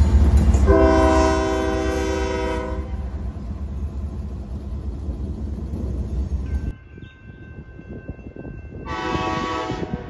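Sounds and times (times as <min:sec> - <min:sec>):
locomotive air horn: 0:00.6 - 0:03.1, 0:08.8 - 0:10.0.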